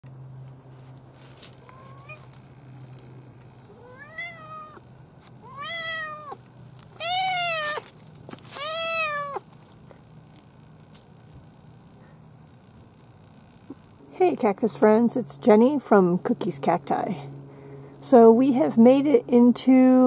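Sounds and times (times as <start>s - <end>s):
cat chirp: 1.6s - 2.3s, 3.7s - 4.8s, 5.4s - 6.4s, 7.0s - 7.8s, 8.6s - 9.4s
cat meowing: 1.6s - 2.3s, 3.7s - 4.8s, 5.4s - 6.4s, 7.0s - 7.8s, 8.5s - 9.4s.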